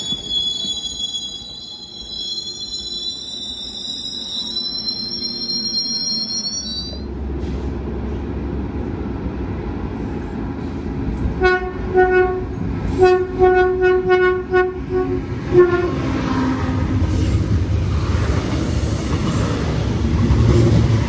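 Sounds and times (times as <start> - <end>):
train wheel squeal: 0.0 - 7.1
diesel railcar rumble: 0.0 - 21.0
train horn toots: 11.4 - 16.2.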